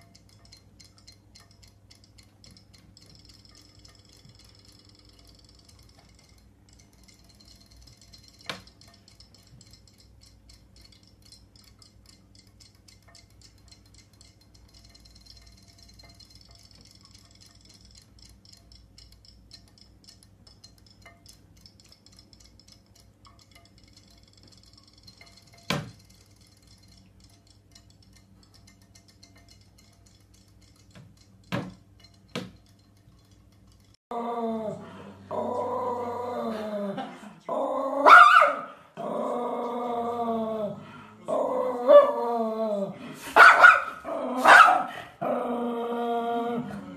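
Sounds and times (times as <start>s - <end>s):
faint ticking and light clinks: 0.0s - 34.0s
puppy barking: 38.0s - 38.8s, 43.3s - 45.1s
puppy drawn-out calls: 38.0s - 38.8s.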